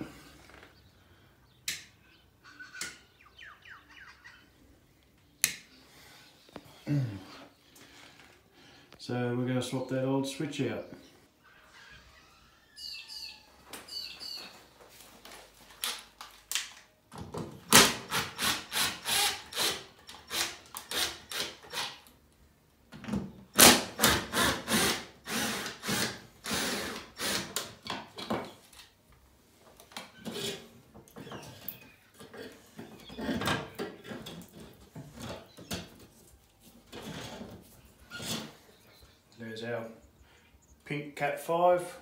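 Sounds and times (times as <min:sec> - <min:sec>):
faint squeaks: 0:11.4 - 0:14.7.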